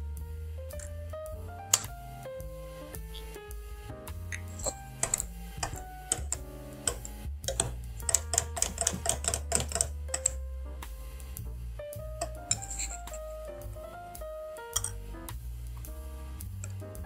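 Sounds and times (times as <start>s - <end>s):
background music: 0.0s - 17.0s
whisk scraping glass bowl: 12.5s - 13.2s.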